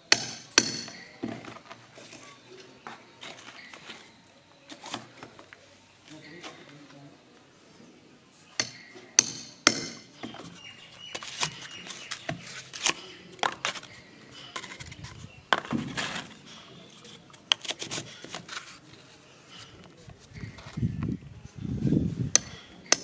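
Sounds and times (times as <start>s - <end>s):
hammer striking metal rod: 0.1s - 1.1s, 8.6s - 10.1s, 22.3s - 23.0s.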